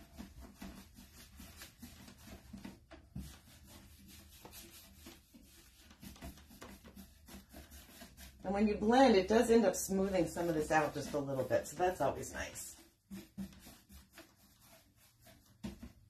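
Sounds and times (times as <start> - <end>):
paintbrush swishing on wood: 0.0 - 16.0.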